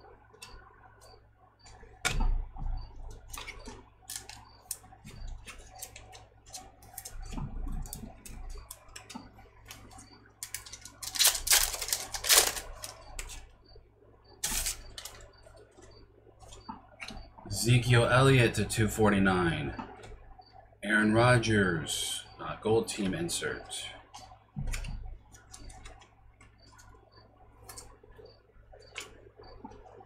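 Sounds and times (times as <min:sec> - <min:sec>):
trading cards clicking and snapping: 0:03.3 - 0:13.4
paper and foil rustling: 0:10.4 - 0:13.5, 0:14.4 - 0:15.2.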